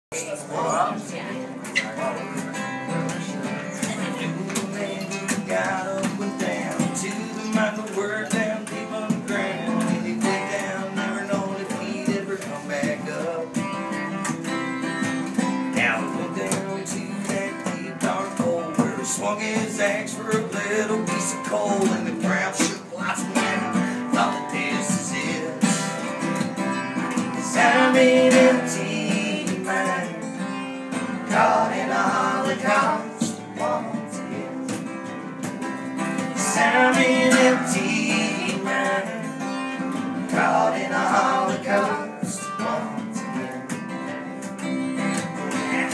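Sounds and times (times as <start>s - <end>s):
strummed acoustic guitar music: 0.1s - 45.9s.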